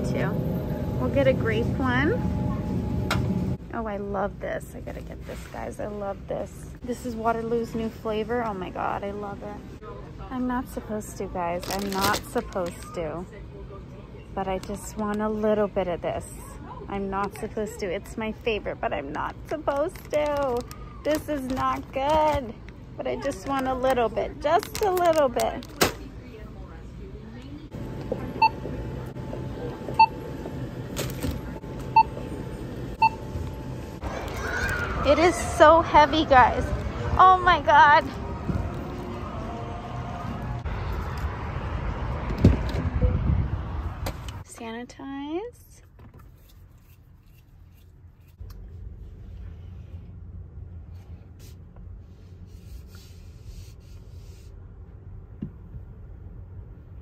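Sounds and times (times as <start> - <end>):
barcode scanner beeping: 33.0 - 33.3.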